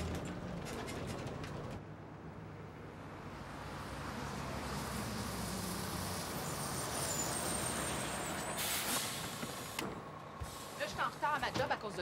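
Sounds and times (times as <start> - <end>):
bus engine running: 3.8 - 12.0
air brakes hissing: 6.4 - 11.4.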